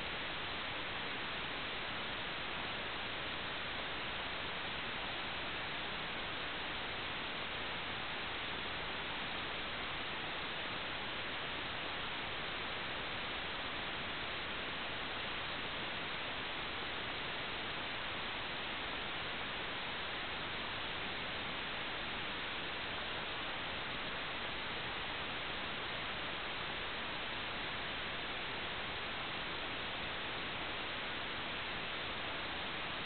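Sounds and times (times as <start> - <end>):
static hiss: 0.0 - 33.0.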